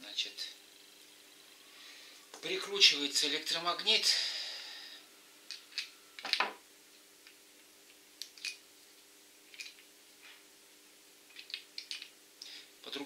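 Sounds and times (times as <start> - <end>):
small plastic and metal parts clicking: 11.3 - 12.1.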